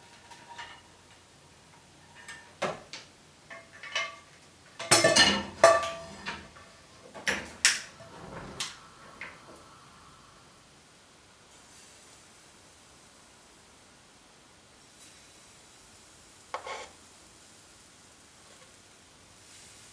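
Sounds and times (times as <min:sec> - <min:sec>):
pots and pans knocking: 0:04.8 - 0:06.4.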